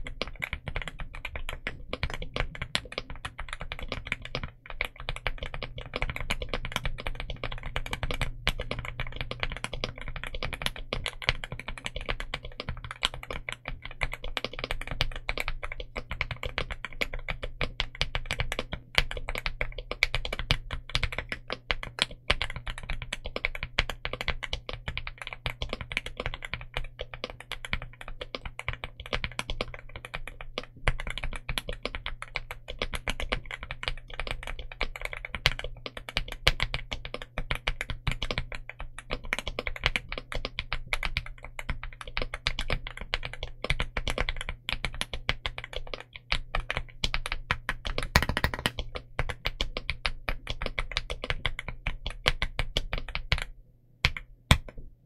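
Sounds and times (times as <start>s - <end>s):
fast typing on mechanical keyboard: 0.0s - 54.7s.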